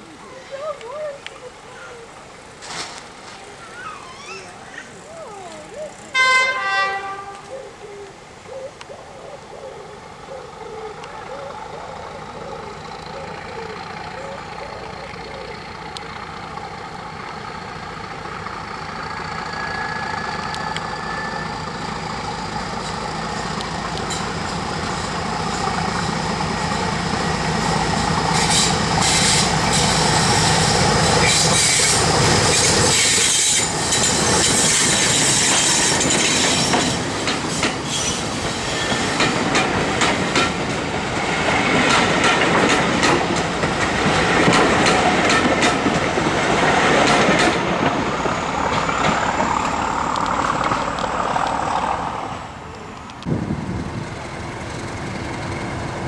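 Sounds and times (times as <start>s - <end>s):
diesel locomotive engine working hard: 10.0s - 56.0s
wheels clacking over rail joints: 20.1s - 53.3s.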